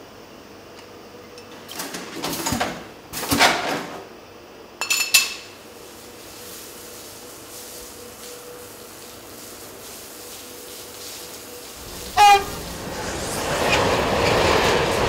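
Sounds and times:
short noisy rushes: 0:11.7 - 0:15.0.

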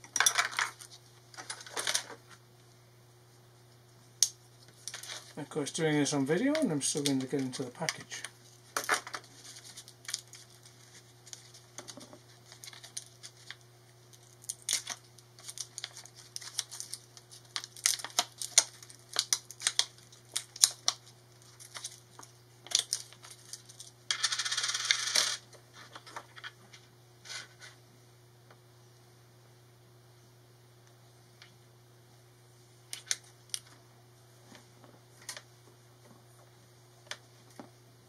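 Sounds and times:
plastic blister pack crackling: 0:06.2 - 0:23.9
plastic tearing rasp: 0:14.2 - 0:22.0.

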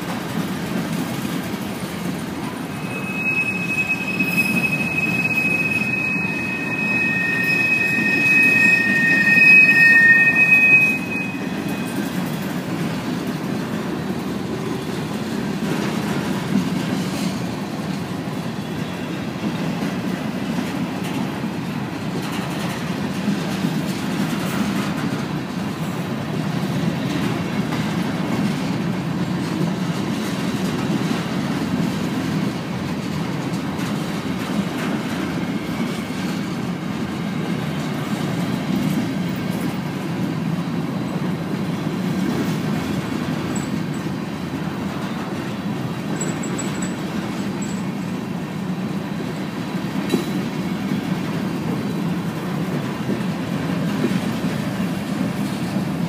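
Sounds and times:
train cars rumbling past: 0:00.0 - 0:56.0
high wheel squeal: 0:02.2 - 0:12.8, 0:35.0 - 0:39.6.

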